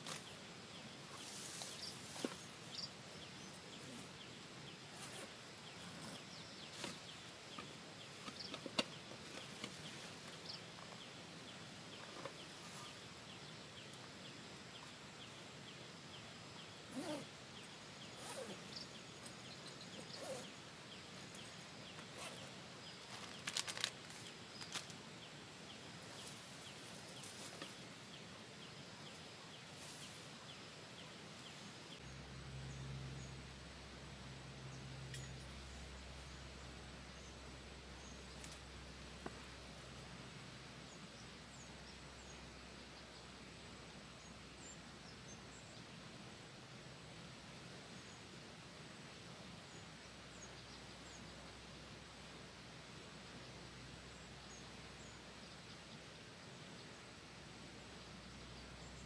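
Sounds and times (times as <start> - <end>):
backpack and gear rustling: 4.9 - 10.6, 16.9 - 17.3, 18.2 - 20.5, 21.3 - 25.0
faint bird calls: 16.8 - 20.6.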